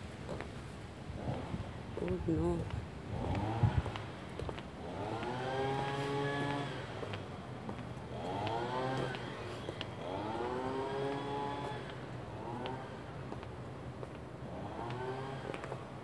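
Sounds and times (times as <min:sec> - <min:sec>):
vehicle engine accelerating: 0:04.8 - 0:07.2, 0:08.1 - 0:13.2.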